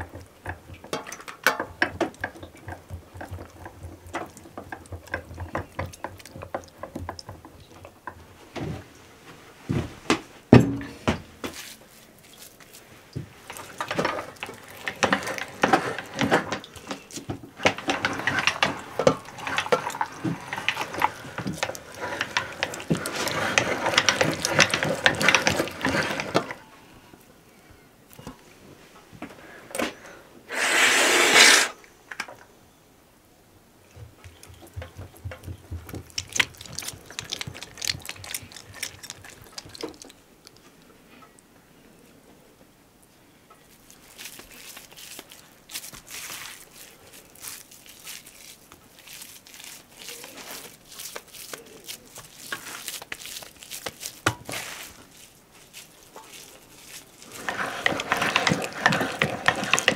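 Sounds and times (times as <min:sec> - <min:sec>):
meat grinder clattering and clicking: 0:00.0 - 0:08.0, 0:13.4 - 0:26.6, 0:34.2 - 0:40.1, 0:56.4 - 0:59.9.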